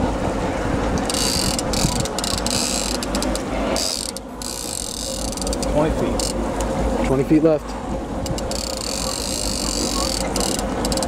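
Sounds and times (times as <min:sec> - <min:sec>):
steady low rumble: 0:00.0 - 0:11.0
fishing reel clicking: 0:01.0 - 0:06.4, 0:08.2 - 0:11.0.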